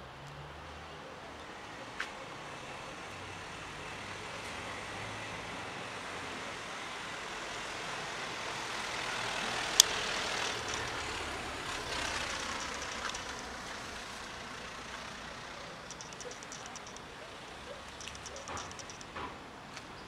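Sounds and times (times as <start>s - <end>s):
motor vehicle passing: 7.3s - 19.3s
sharp click: 9.8s - 11.0s, 12.5s - 13.6s, 15.8s - 17.1s, 17.9s - 19.2s.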